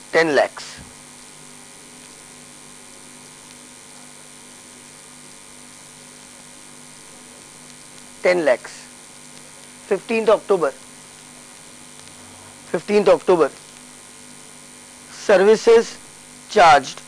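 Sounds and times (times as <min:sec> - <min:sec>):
faint hiss: 0:00.0 - 0:05.1
electrical mains hum: 0:00.0 - 0:17.0
man speaking: 0:08.2 - 0:08.9, 0:09.9 - 0:10.8, 0:12.2 - 0:13.6, 0:15.1 - 0:17.0.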